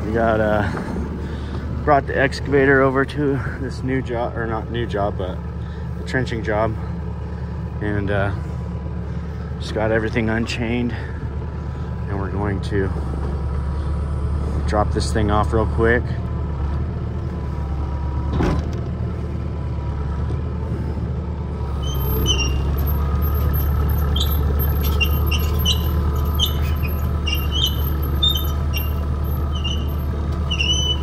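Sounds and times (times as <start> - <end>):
excavator diesel engine: 0.0 - 31.0
short high squeaks: 21.7 - 31.0.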